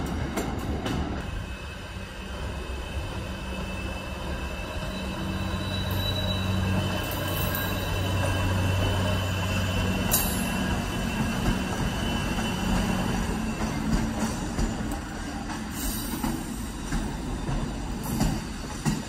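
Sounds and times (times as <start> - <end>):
diesel locomotive engine drone: 0.0 - 19.0
wheels rumbling on rails: 0.0 - 19.0
high wheel squeal: 1.4 - 14.5.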